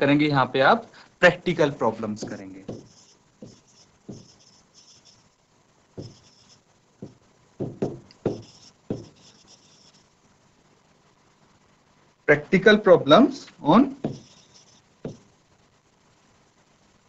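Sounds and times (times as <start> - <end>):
stylus tapping on smart board: 2.2 - 4.4, 6.0 - 9.6, 14.0 - 15.3.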